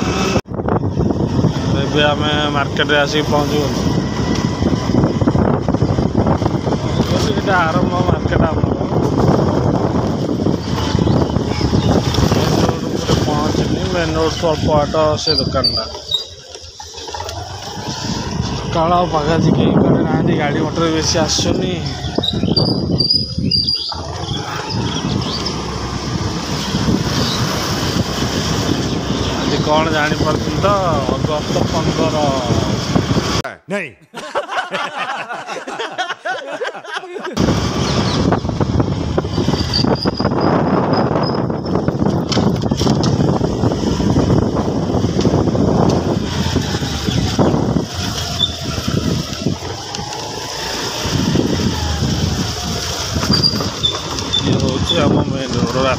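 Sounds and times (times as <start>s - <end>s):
motorbike passing: 0.0s - 33.4s, 34.8s - 55.9s
scooter engine running: 0.0s - 33.4s, 37.4s - 55.9s
wind buffeting microphone: 0.0s - 33.4s, 37.4s - 55.9s.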